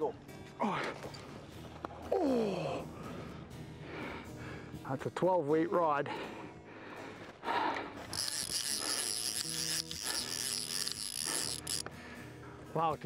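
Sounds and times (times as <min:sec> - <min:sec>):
fishing reel drag buzzing: 0:08.0 - 0:11.9.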